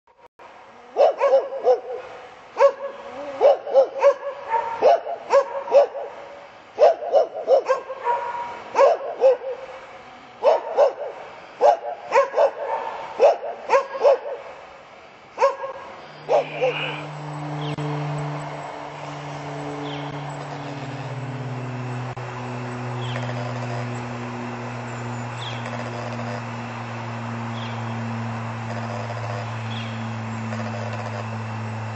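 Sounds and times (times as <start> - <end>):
low mechanical hum: 0.4 - 31.9
dog barking: 0.9 - 6.2, 6.8 - 9.8, 10.4 - 14.5, 15.4 - 17.0
bird chirping: 19.6 - 21.0, 21.6 - 26.4, 27.5 - 28.1, 29.3 - 30.8.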